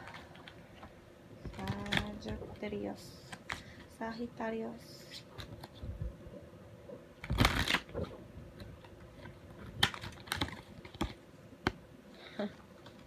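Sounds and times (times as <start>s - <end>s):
cards being shuffled: 7.2s - 11.8s.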